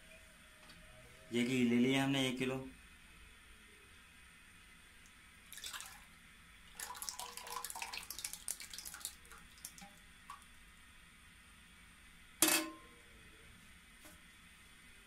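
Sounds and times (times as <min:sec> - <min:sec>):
drips: 0:05.5 - 0:06.1, 0:06.7 - 0:10.4
liquid pouring and splashing: 0:05.5 - 0:06.1, 0:06.7 - 0:10.0.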